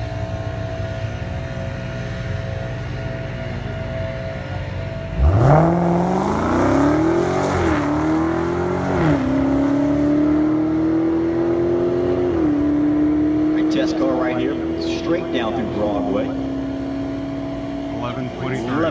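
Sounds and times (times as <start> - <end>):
car engine revving at launch: 5.1 - 16.7.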